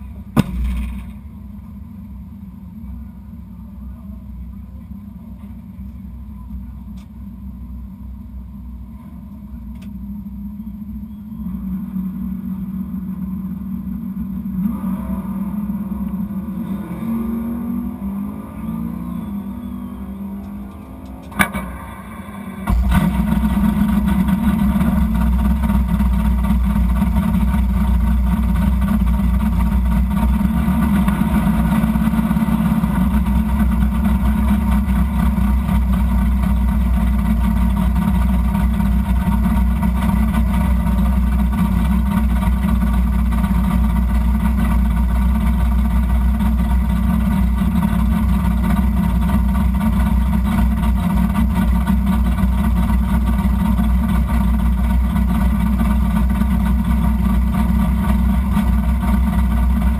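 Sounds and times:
car engine starting and idling: 0.0s - 59.9s
click: 9.7s - 10.0s.

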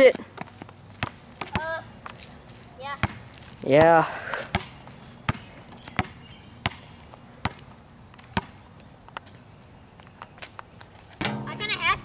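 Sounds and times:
basketball bouncing on asphalt: 0.3s - 1.9s, 2.9s - 8.6s, 11.2s - 12.0s.

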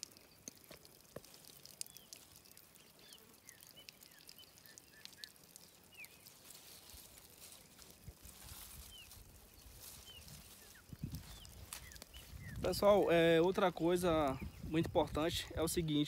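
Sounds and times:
faint bird chirps: 1.8s - 7.8s, 8.4s - 12.6s.

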